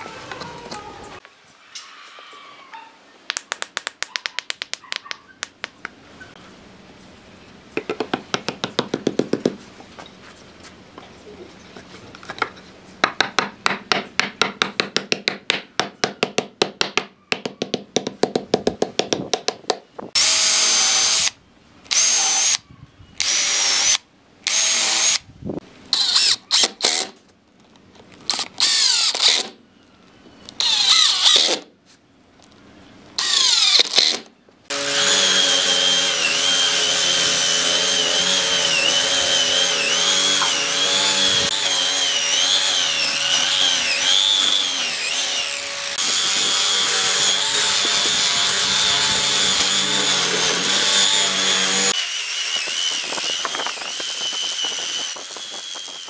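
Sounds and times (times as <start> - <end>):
hammer tapping on wood: 7.8 - 9.6, 13.0 - 19.8
cordless drill boring into wood: 20.2 - 22.6, 23.2 - 25.2, 25.9 - 27.2, 28.3 - 29.6, 30.6 - 31.7, 33.2 - 56.0.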